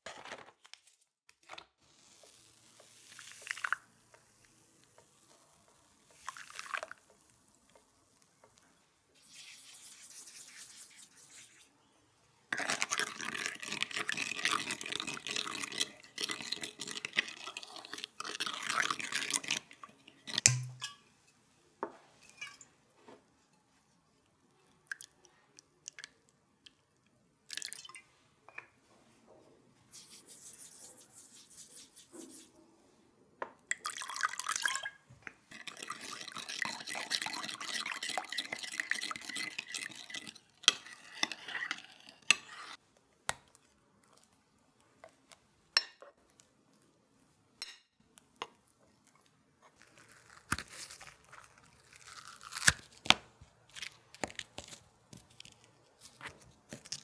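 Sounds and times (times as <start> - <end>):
liquid pouring into a bowl: 33.8 - 40.4
crisp crackle of peeling biscuits: 48.2 - 57.0.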